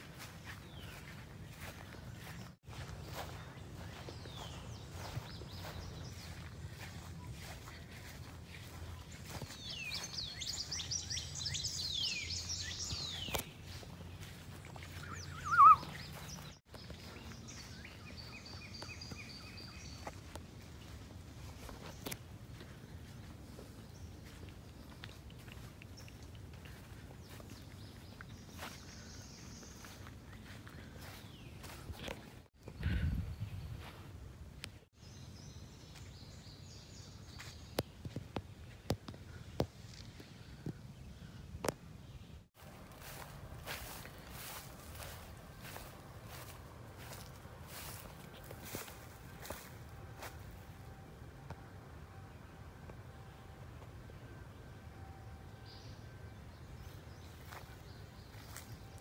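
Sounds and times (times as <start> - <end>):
footsteps on dry grass: 0.0 - 34.3, 37.2 - 40.6, 42.6 - 50.8, 56.8 - 59.0
songbirds singing: 0.0 - 59.0
bird warbling call: 14.8 - 16.5.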